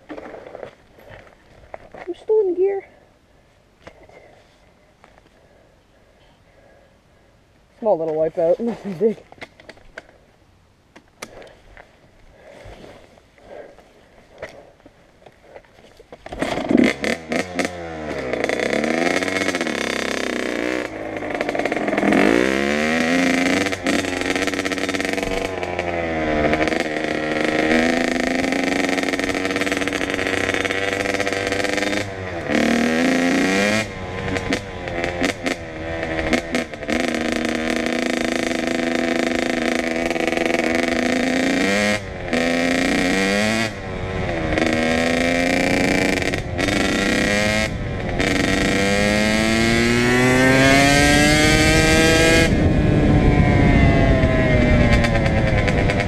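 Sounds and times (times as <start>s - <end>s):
dirt bike engine revving: 16.3s - 56.0s.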